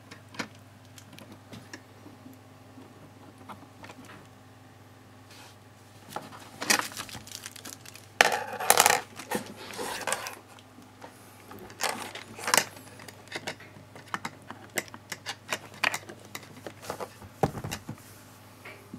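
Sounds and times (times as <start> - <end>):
bubble wrap crinkling: 6.1 - 10.4.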